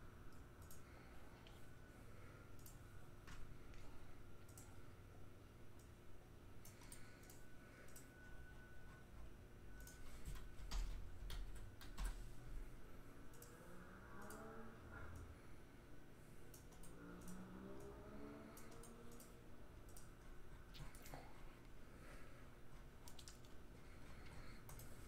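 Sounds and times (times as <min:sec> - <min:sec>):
faint rising tone: 0:16.9 - 0:19.7
mouse and keyboard clicks: 0:18.5 - 0:19.3, 0:23.0 - 0:23.6.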